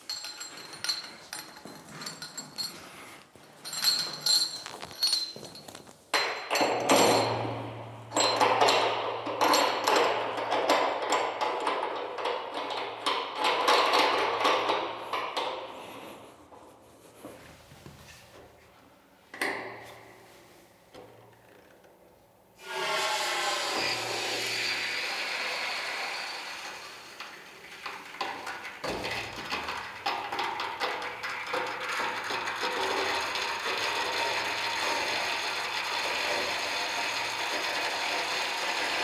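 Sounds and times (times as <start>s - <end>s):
metal fittings clinking: 0.0s - 7.3s.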